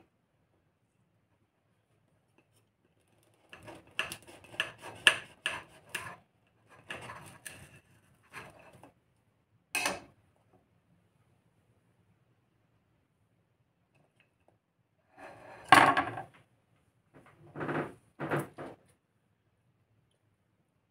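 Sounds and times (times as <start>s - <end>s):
knife scraping ceramic plate: 3.1s - 8.8s, 15.2s - 15.7s.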